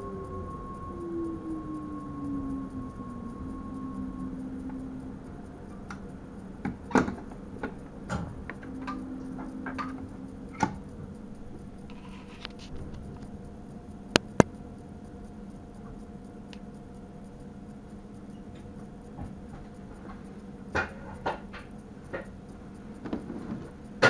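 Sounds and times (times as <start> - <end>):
electrical hum: 0.0 - 24.0
sharp clicks and knocks: 14.1 - 14.5.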